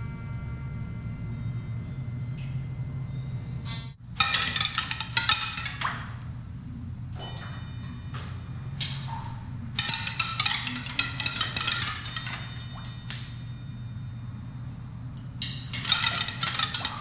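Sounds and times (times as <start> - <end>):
steady low hum: 0.0 - 17.0
pebbles clattering on wooden pipes: 4.1 - 6.3, 7.2 - 13.4, 15.4 - 17.0.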